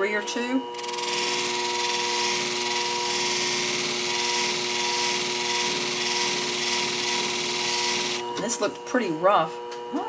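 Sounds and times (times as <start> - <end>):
blade hissing on polishing disc: 0.8 - 8.3
machine motor hum: 0.8 - 8.5.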